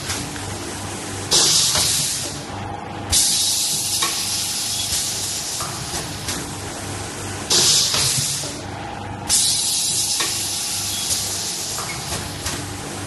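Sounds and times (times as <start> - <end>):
pneumatic air hiss: 1.3 - 2.3, 3.1 - 5.7, 7.5 - 8.5, 9.3 - 12.1.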